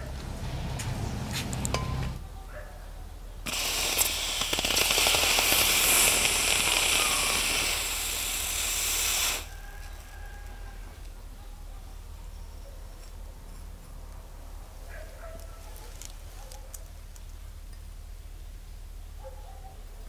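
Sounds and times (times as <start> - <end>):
hot metal sizzling under ice: 3.4 - 11.0.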